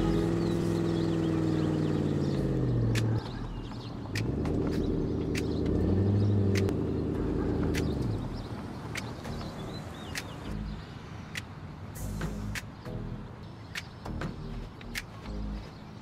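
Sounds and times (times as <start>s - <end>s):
car engine revving hard: 4.2s - 8.2s.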